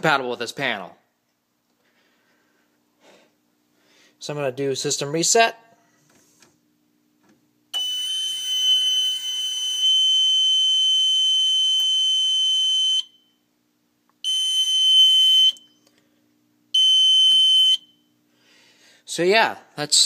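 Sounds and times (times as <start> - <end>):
alarm panel buzzer high tone: 7.7 - 13.4, 14.2 - 15.8, 16.7 - 18.1.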